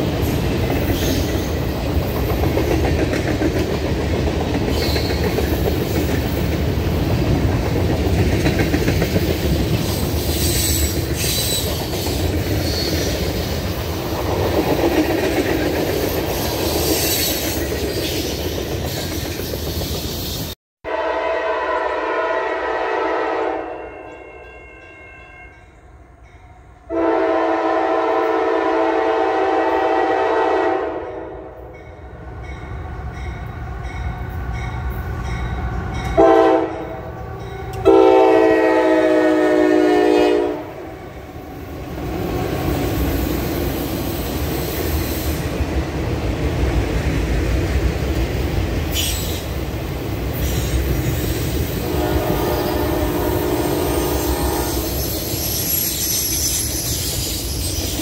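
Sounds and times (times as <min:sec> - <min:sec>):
rolling clatter of train cars: 0:00.0 - 0:20.6, 0:31.6 - 0:58.0
train air horn blasts: 0:20.8 - 0:24.2, 0:26.9 - 0:31.7, 0:36.1 - 0:41.1, 0:50.4 - 0:55.6.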